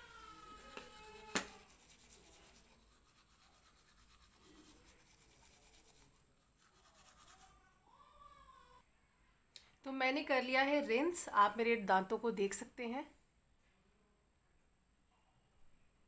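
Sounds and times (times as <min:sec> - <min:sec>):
toothbrush scrubbing teeth: 0:00.1 - 0:07.6.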